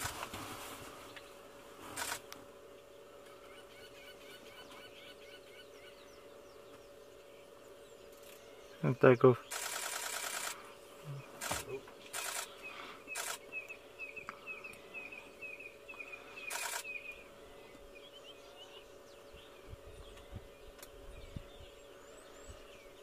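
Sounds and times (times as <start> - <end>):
camera shutter firing: 2.0 - 2.2, 9.5 - 10.6, 11.4 - 12.5, 13.1 - 13.4, 16.5 - 16.9
bird chirping: 2.8 - 23.0.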